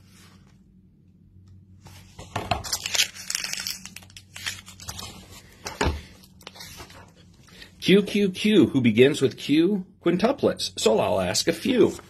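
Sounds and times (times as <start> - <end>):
paper crinkling and rustling: 1.8 - 7.3.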